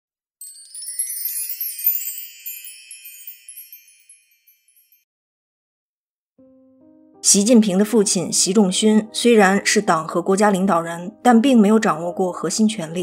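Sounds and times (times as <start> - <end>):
high tinkling chime: 0.4 - 5.1.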